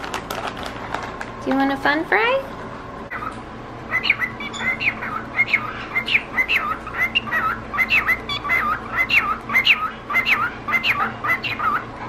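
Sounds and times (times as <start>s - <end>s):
cockatiel chirping and warbling: 3.1s - 11.9s.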